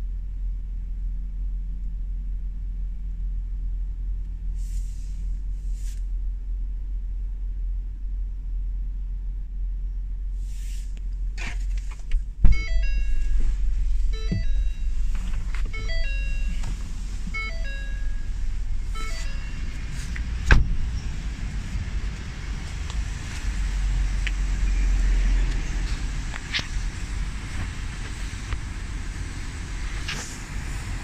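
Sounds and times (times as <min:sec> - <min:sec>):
engine idling: 0:00.0 - 0:31.0
tinkly chime melody: 0:15.8 - 0:16.6
loud thump: 0:20.4 - 0:20.9.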